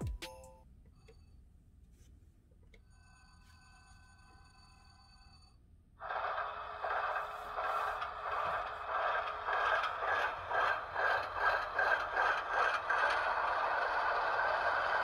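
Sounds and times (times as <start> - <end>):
diesel engine sound through small speaker: 6.0 - 15.0.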